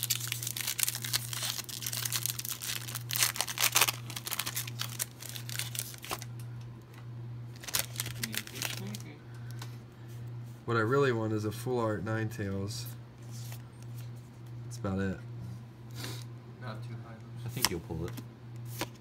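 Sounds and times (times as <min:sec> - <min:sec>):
foil wrapper tearing and crinkling: 0:00.0 - 0:06.3, 0:07.5 - 0:09.1
steady low hum: 0:00.0 - 0:19.0.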